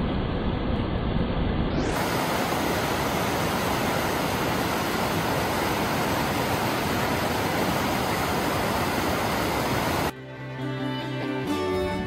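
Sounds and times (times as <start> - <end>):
river rushing over rocks: 1.8 - 10.1.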